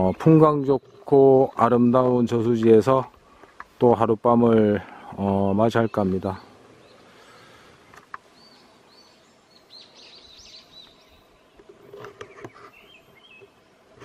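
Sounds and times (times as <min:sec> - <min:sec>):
small bird chirping: 0:05.2 - 0:13.6.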